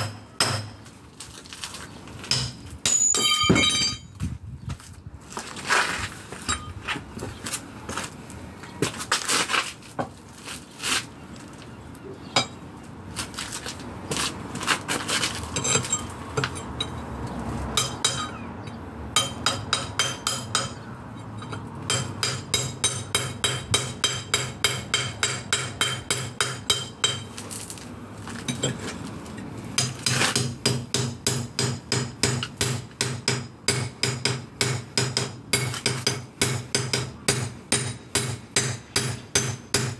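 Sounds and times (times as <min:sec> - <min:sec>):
hammer striking chisel on concrete: 0:00.0 - 0:00.8, 0:02.3 - 0:04.0, 0:17.8 - 0:27.4, 0:29.8 - 0:39.9
scraping on concrete: 0:00.8 - 0:02.8, 0:04.1 - 0:12.0, 0:13.1 - 0:16.8, 0:27.2 - 0:30.5.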